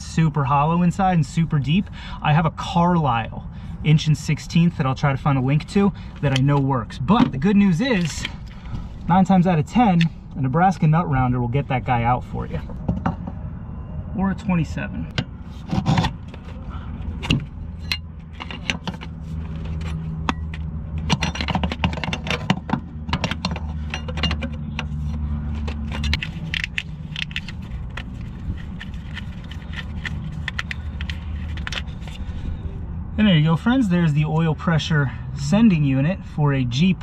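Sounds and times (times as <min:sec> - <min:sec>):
wrench clinking on metal: 0:20.2 - 0:24.8.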